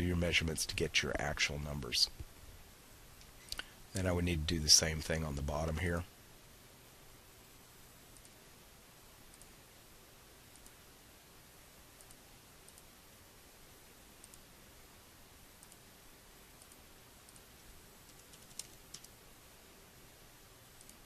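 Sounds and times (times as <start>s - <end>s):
low steady hiss: 0.0s - 21.0s
computer mouse clicks: 8.1s - 8.4s, 9.3s - 9.6s, 10.5s - 10.8s, 12.0s - 12.9s, 14.2s - 14.5s, 15.6s - 15.9s, 16.6s - 19.2s, 20.8s - 21.0s
keyboard keystrokes: 18.1s - 19.2s.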